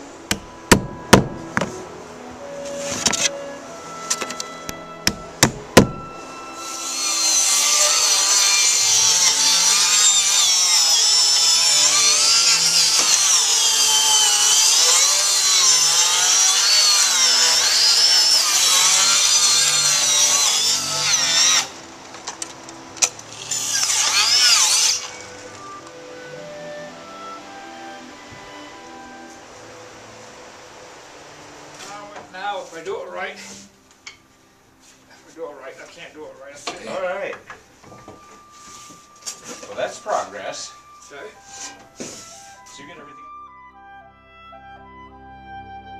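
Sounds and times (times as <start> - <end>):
power saw cutting wood: 2.5 - 22.0, 23.0 - 29.1.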